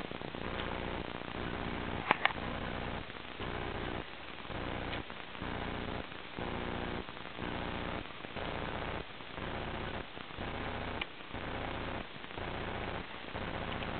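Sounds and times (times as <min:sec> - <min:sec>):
electrical hum: 0:00.0 - 0:13.9
static hiss: 0:00.0 - 0:13.9
faint clicks: 0:04.8 - 0:05.2, 0:13.4 - 0:13.9.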